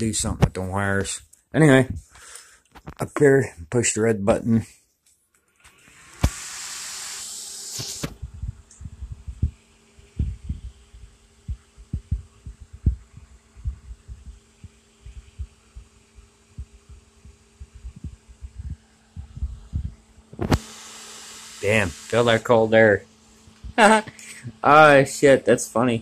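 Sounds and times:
cooling fan humming: 5.9 - 26.0
air buffeting microphone: 8.2 - 15.9, 16.6 - 20.6.

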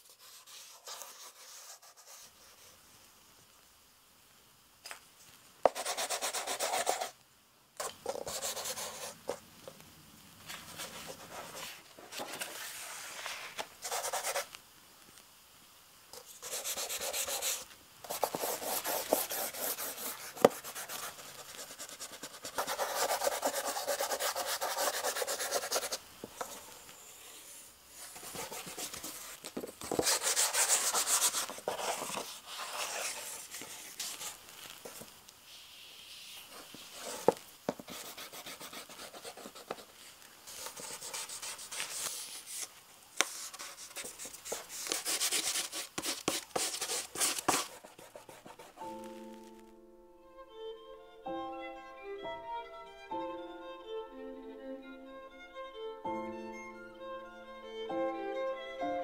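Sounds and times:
charcoal scratching on paper: 0.0 - 2.7, 5.7 - 7.1, 16.2 - 26.0, 28.0 - 34.4, 36.0 - 48.8.

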